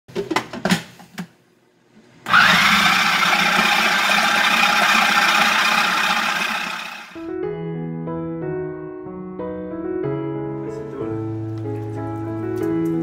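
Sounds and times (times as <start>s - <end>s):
food processor motor running: 2.3s - 7.3s.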